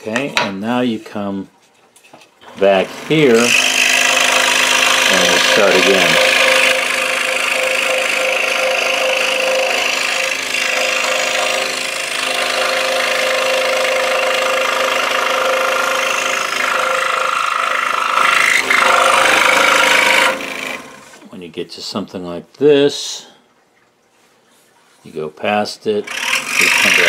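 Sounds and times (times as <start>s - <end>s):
scroll saw cutting wood: 2.4s - 21.3s, 26.0s - 27.0s.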